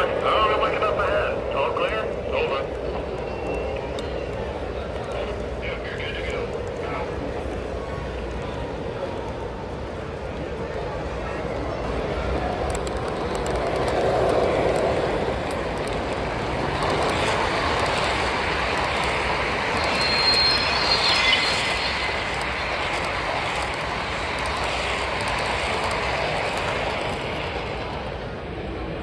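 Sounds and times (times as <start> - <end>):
model train wheels on track: 0.0 - 29.0
high thin tone: 19.7 - 22.8.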